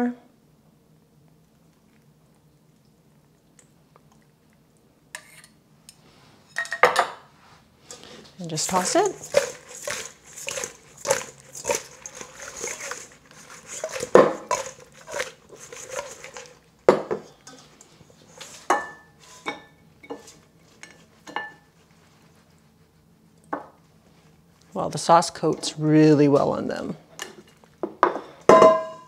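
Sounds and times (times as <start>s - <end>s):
chicken wings tossed in metal bowl: 8.0s - 16.7s.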